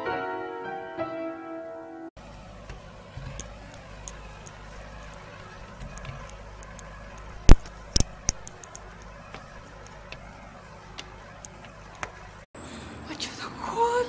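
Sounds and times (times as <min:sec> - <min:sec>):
low steady hum: 0:02.2 - 0:12.5.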